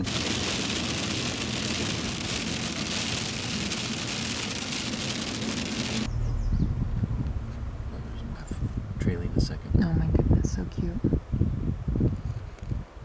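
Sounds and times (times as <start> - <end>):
rain pattering on windshield: 0.0 - 6.1.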